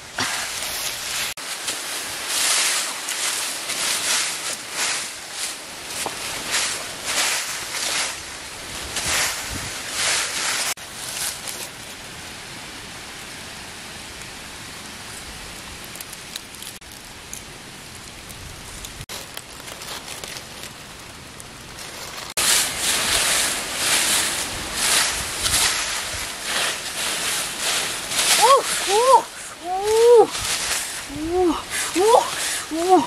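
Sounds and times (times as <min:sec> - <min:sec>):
dry leaves raked by hand: 0:00.0 - 0:12.2, 0:19.0 - 0:33.0
steady hiss: 0:00.0 - 0:33.0.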